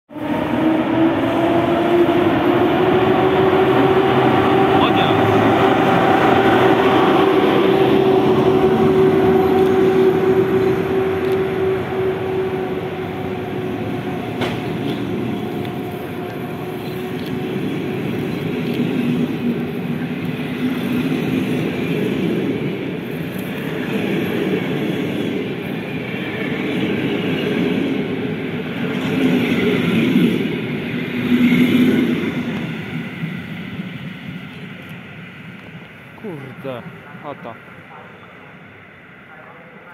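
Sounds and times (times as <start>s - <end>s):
electric locomotive hum: 0.1s - 39.9s
train wheels clattering on rails: 13.0s - 35.9s.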